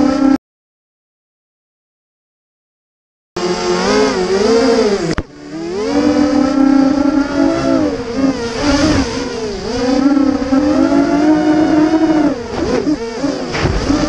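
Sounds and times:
quadcopter motors whining: 0.0 - 0.4, 3.4 - 14.0.

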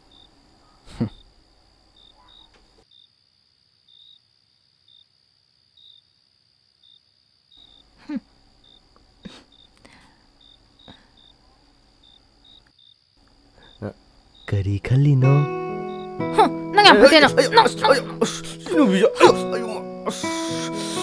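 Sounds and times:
crickets chirping: 0.0 - 21.0
soft voice: 16.4 - 21.0.

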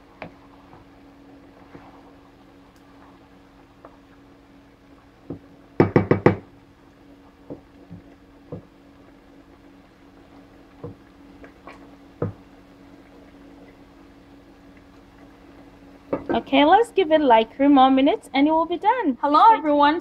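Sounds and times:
faint steady hum: 0.0 - 20.0
wooden spatula knocking on frying pan: 5.3 - 6.5, 12.2 - 12.4.

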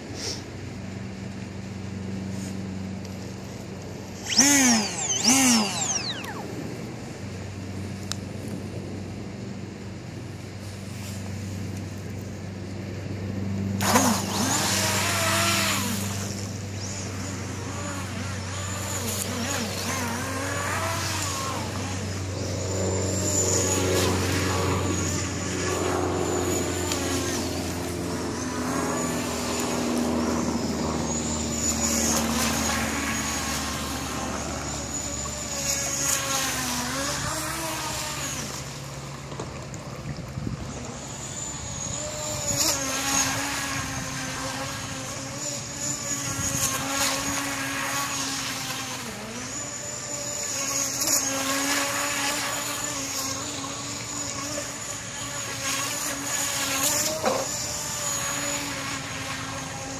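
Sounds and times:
electric motor whine: 0.0 - 8.6, 12.9 - 59.9.

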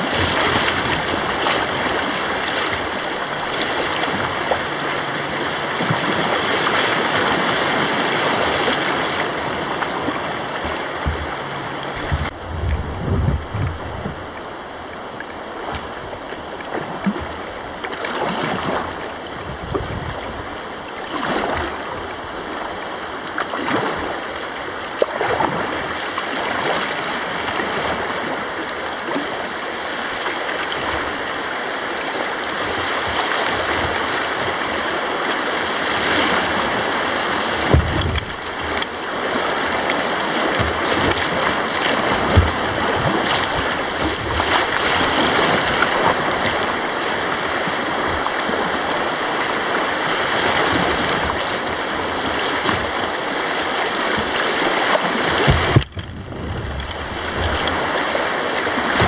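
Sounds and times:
river rapids rushing: 0.0 - 59.0
short low thumps: 10.6 - 14.4.

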